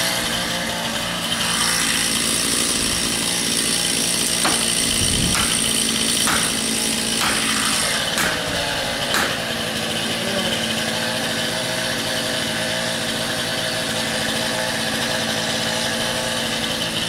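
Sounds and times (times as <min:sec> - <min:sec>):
chainsaw idling: 0:00.0 - 0:17.0
sledgehammer striking wedge: 0:04.3 - 0:09.6.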